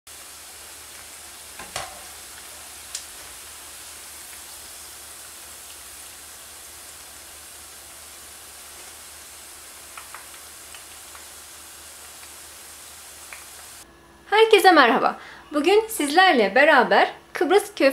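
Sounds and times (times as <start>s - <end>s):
oil sizzling: 0.1s - 13.9s.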